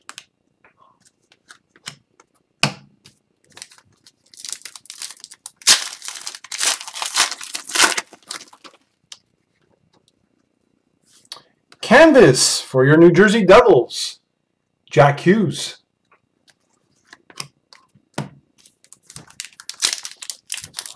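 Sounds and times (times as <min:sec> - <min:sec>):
wrapper crinkling and tearing: 0:03.5 - 0:08.9, 0:18.6 - 0:20.9.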